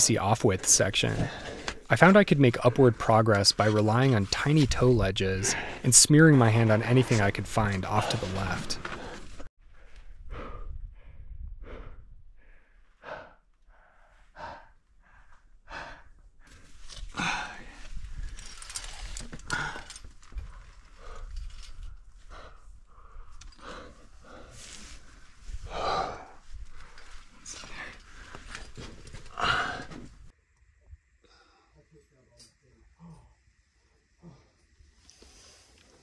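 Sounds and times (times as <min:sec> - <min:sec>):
person breathing hard: 0:08.8 - 0:18.4, 0:20.9 - 0:28.5.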